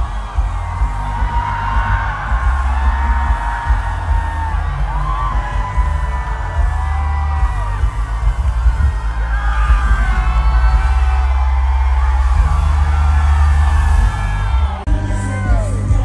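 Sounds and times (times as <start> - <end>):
high voices singing and whooping: 0.0 - 16.0
loud live pop music: 0.0 - 16.0.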